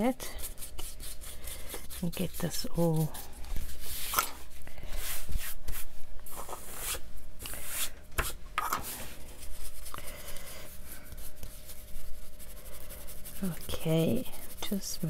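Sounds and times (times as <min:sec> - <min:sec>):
brush scratching on paper: 0:00.0 - 0:04.2, 0:08.9 - 0:15.0.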